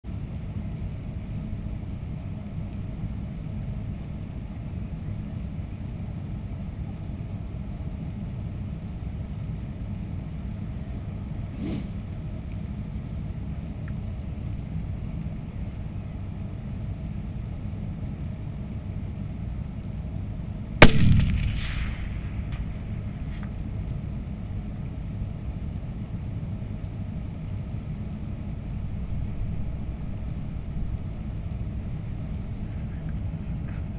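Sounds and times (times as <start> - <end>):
rifle shot: 20.8 - 23.7
low rumble: 20.8 - 25.0.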